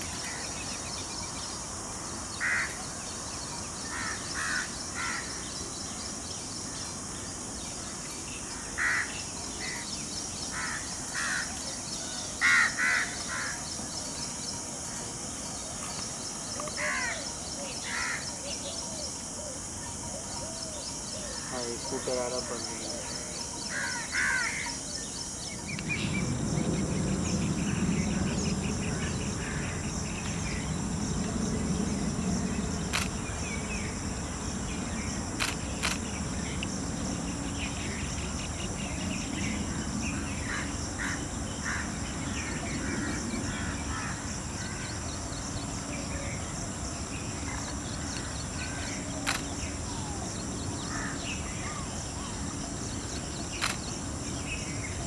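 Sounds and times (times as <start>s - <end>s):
high insect buzz: 0.0s - 55.0s
low rumble: 25.6s - 34.9s
sharp clicks: 32.9s - 33.2s, 35.4s - 36.1s, 49.2s - 49.6s, 53.5s - 53.9s.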